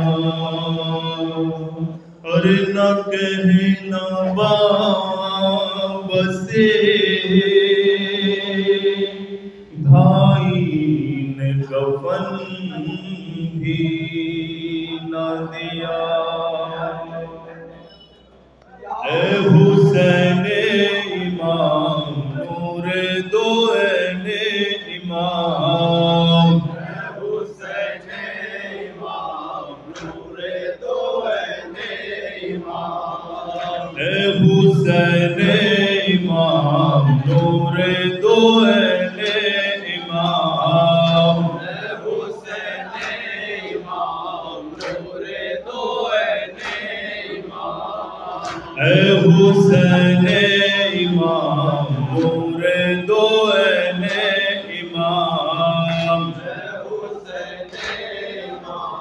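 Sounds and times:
men chanting in unison: 0:00.0 - 0:17.7, 0:18.9 - 0:59.0
lead voice on microphone: 0:18.9 - 0:27.1, 0:33.5 - 0:43.8, 0:48.4 - 0:57.2.

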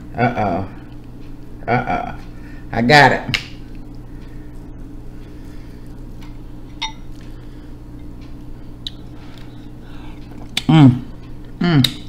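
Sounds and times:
steady electrical hum: 0:00.0 - 0:12.0
glass bowl clink: 0:06.7 - 0:07.1.

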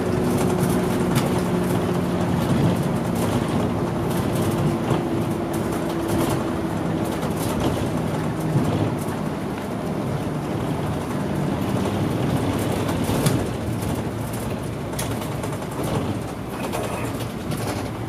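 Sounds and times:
diesel bus engine: 0:00.0 - 0:18.0
road noise: 0:00.0 - 0:18.0.

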